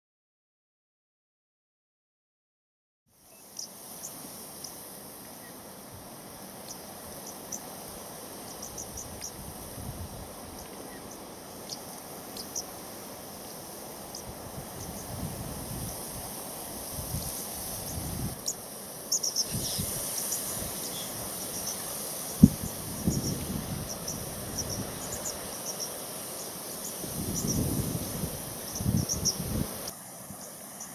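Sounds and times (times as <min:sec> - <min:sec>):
background hiss: 0:03.1 - 0:30.9
insects buzzing: 0:03.1 - 0:30.9
wind buffeting microphone: 0:14.3 - 0:18.4, 0:22.4 - 0:25.2, 0:27.0 - 0:29.9.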